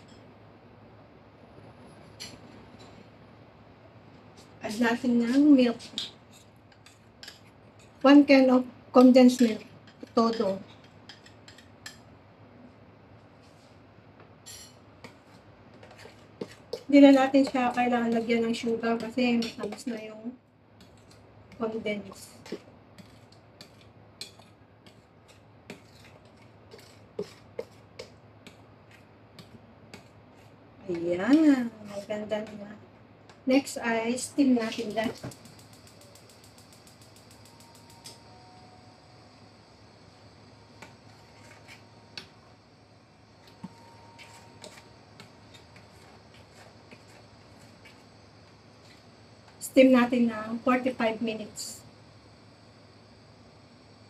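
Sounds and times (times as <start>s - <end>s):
faint low hum: 0.0s - 54.0s
spoon stirring thick mixture: 4.4s - 8.4s, 9.0s - 12.1s, 14.5s - 33.4s, 40.7s - 42.5s, 43.3s - 49.6s.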